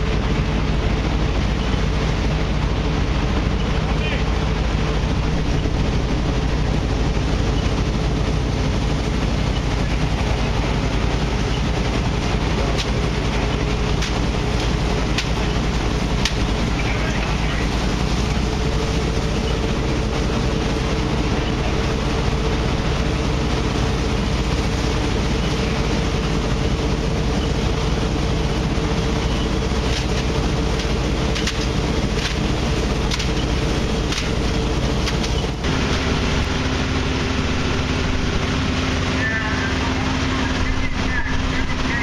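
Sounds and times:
fire engine pumps droning: 0:00.0 - 0:42.0.

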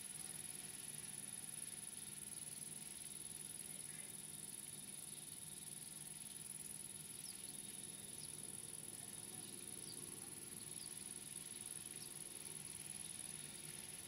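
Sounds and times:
insect stridulation: 0:00.0 - 0:14.0.

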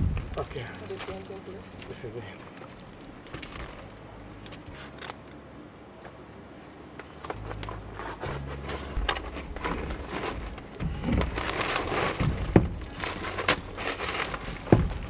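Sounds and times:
low rumble: 0:00.0 - 0:01.9, 0:07.4 - 0:15.0
plastic wrapping crinkling: 0:00.0 - 0:05.5, 0:07.2 - 0:15.0.

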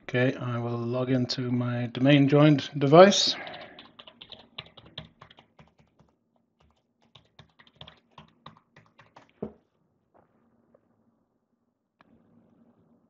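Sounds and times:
typing on computer keyboard: 0:03.4 - 0:09.5.

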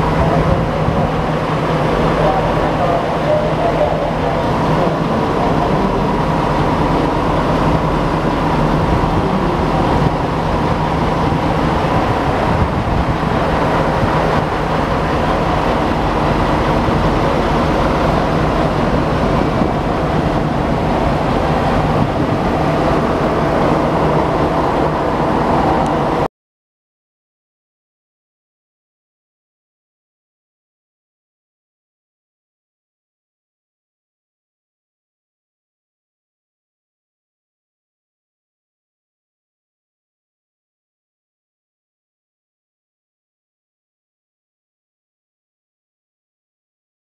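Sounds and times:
diesel railcar engine idling: 0:00.0 - 0:26.3.

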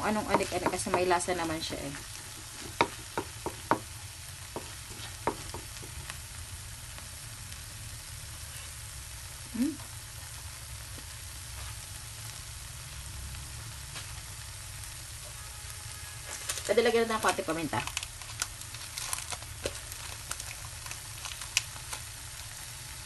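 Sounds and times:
food sizzling in a pan: 0:00.0 - 0:23.0
wooden spatula knocking on pan: 0:00.2 - 0:01.2, 0:02.6 - 0:03.9, 0:04.5 - 0:06.0.

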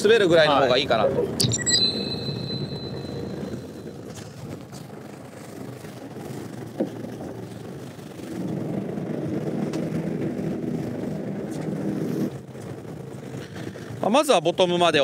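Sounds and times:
wind: 0:00.0 - 0:15.0
boat engine running: 0:03.2 - 0:15.0.

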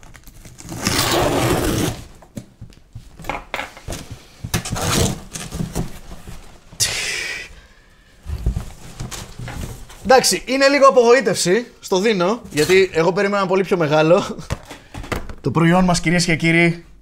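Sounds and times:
cardboard tearing: 0:00.0 - 0:02.2, 0:04.6 - 0:06.1
knocks and rustles of box: 0:02.3 - 0:06.7.

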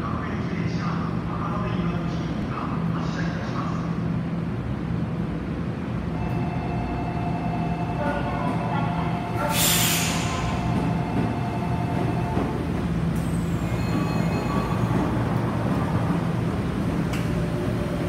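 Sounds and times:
train running rumble: 0:00.0 - 0:18.0
electric train whine: 0:06.0 - 0:18.0
air hiss: 0:09.5 - 0:10.6.

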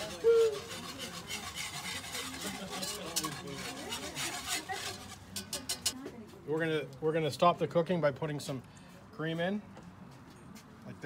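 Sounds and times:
wire whisk scraping a skillet: 0:00.0 - 0:06.0.

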